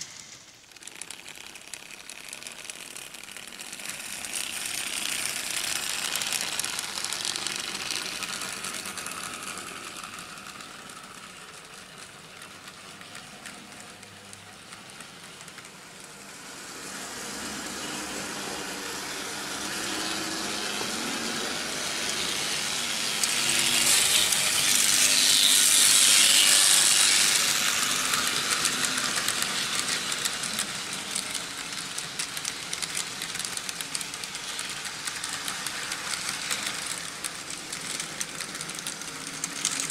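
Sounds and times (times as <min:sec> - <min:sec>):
model train motors whirring: 0:00.0 - 0:39.9
wheels rattling over rails: 0:00.0 - 0:39.9.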